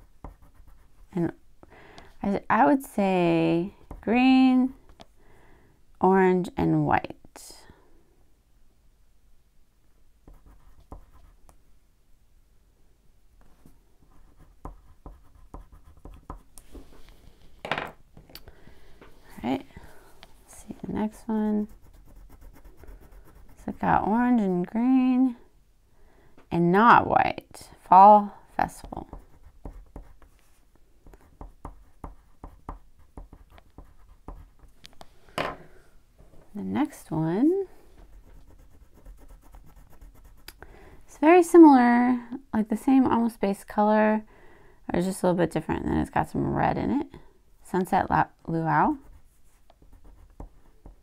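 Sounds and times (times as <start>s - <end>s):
crayon scratching on paper: 0.0s - 1.1s, 10.3s - 11.4s, 13.5s - 16.5s, 20.7s - 24.1s, 28.8s - 34.7s, 38.0s - 40.5s, 48.9s - 51.0s
crayon strokes on paper: 20.5s - 24.1s, 38.0s - 40.5s, 48.9s - 50.5s.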